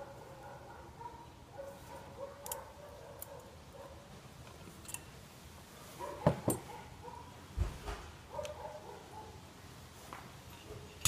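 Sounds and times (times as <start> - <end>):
metallic clicks of pliers: 4.8 - 5.1.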